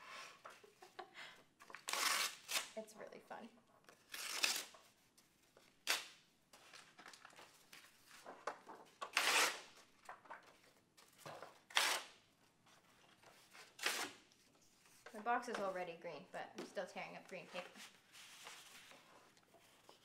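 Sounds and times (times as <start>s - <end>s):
paper being torn: 1.7s - 2.8s, 4.0s - 4.8s, 9.1s - 9.7s, 11.7s - 12.1s, 13.7s - 14.2s.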